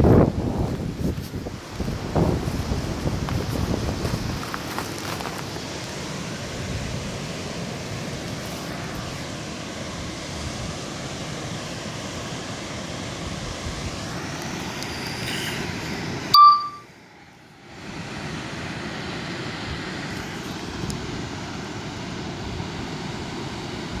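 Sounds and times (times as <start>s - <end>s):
rushing outdoor noise: 0.0s - 24.0s
short high electronic beep: 16.3s - 16.8s.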